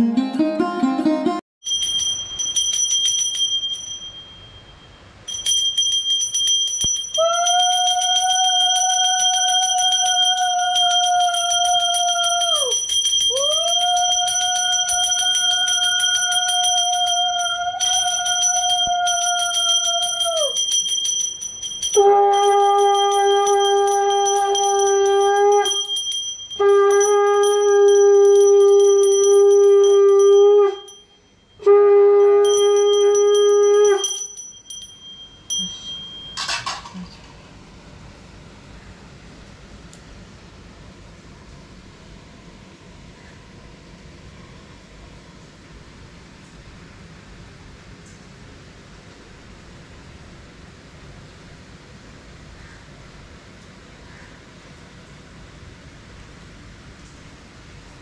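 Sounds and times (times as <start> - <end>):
brass hand bell ringing: 1.6 - 36.8
conch shell blasts: 21.8 - 31.0, 31.6 - 34.2.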